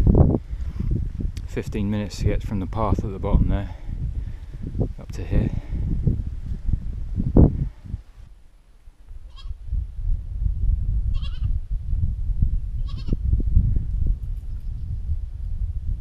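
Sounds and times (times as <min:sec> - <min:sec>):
wind rumble on microphone: 0:00.0 - 0:16.0
goat bleating: 0:09.3 - 0:09.6, 0:11.1 - 0:11.5, 0:12.8 - 0:13.2.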